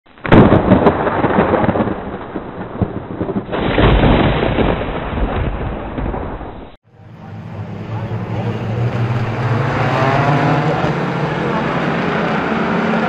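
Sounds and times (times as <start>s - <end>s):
thunder rumbling: 0.1s - 6.8s, 7.5s - 13.0s
thunderclap: 0.1s - 6.8s.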